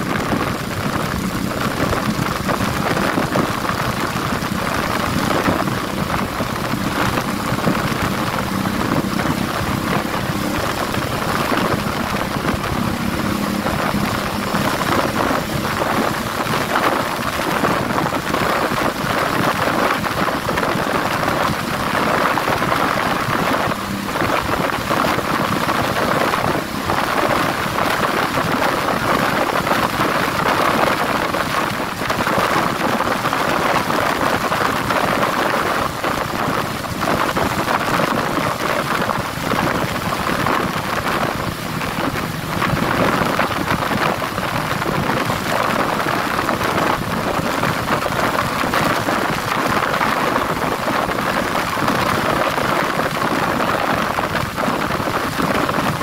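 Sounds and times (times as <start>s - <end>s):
motorcycle engine hum: 0.0s - 56.0s
wind rushing over microphone: 0.0s - 56.0s.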